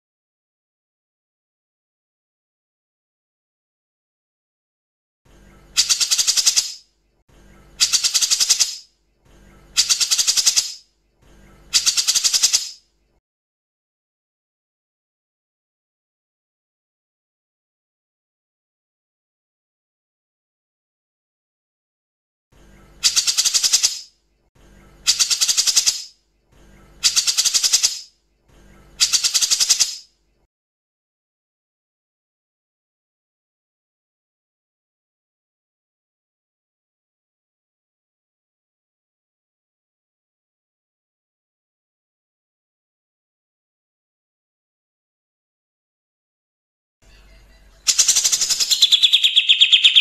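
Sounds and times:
bulbul rattle call: 0:05.8 - 0:06.8, 0:07.8 - 0:08.9, 0:09.8 - 0:10.8, 0:47.9 - 0:50.0.

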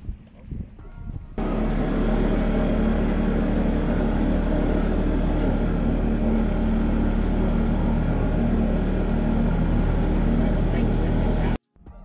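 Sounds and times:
boat motor running: 0:01.4 - 0:11.6.

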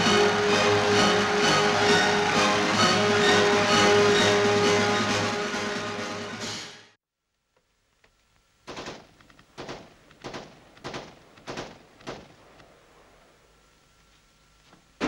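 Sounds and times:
film music: 0:00.0 - 0:07.0
gunshots with echoing tail: 0:08.7 - 0:13.2.

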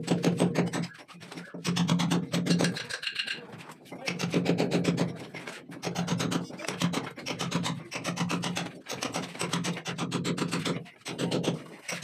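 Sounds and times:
hammer striking chisel into brick: 0:00.0 - 0:00.9, 0:01.5 - 0:02.9, 0:04.1 - 0:05.2, 0:05.8 - 0:12.0.

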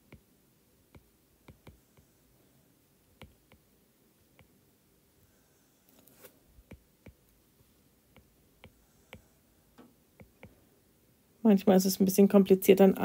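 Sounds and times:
stylus tapping on glass screen: 0:01.0 - 0:01.8.

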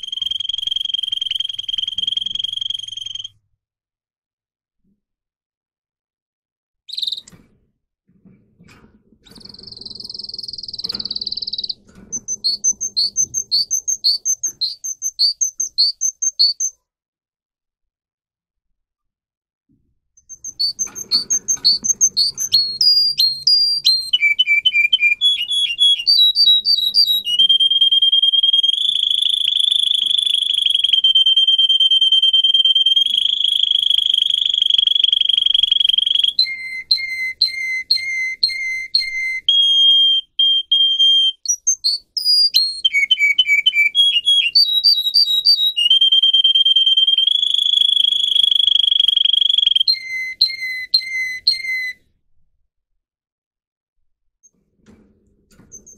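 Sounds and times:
canary singing: 0:00.0 - 0:03.4, 0:06.9 - 0:07.4, 0:09.2 - 0:16.8, 0:20.2 - 0:52.0, 0:55.6 - 0:55.9.

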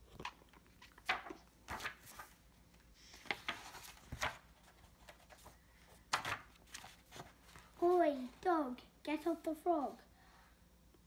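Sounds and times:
book pages turning: 0:00.1 - 0:08.3.

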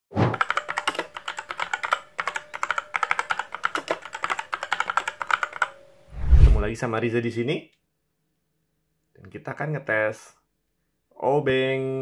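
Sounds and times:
keyboard typing: 0:00.3 - 0:05.8.

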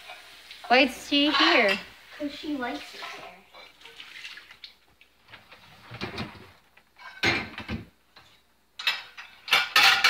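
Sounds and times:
dishes clattering on wire rack: 0:07.0 - 0:07.9, 0:08.8 - 0:10.0.

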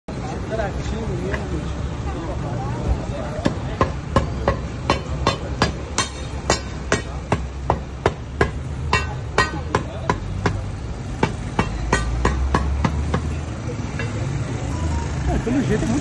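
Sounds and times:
pry bars clanking on metal: 0:03.5 - 0:10.6.

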